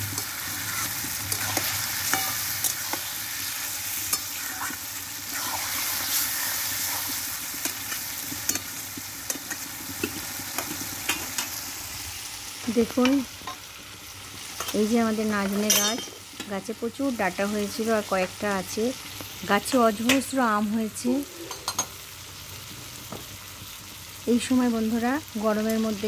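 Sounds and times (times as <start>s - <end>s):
metal spatula scraping a pan: 0.0s - 8.8s
meat sizzling in hot oil: 0.0s - 26.0s.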